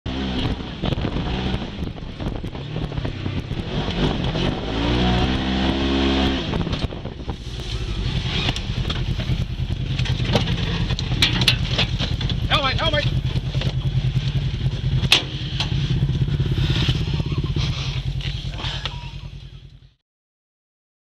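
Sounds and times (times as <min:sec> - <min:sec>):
off-road vehicle engine running: 0:00.1 - 0:20.0
knocks and rattles from bumps: 0:08.5 - 0:14.0.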